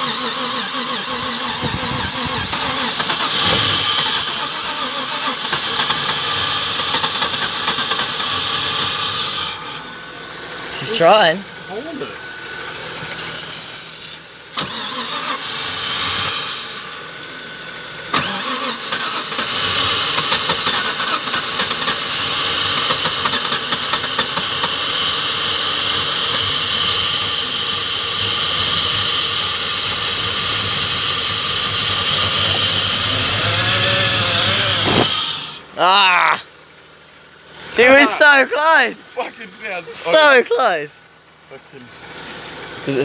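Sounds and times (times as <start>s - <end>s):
engine cranking on starter: 0.0s - 9.8s, 13.1s - 35.7s
aerosol can hissing: 13.2s - 17.2s, 17.9s - 35.5s.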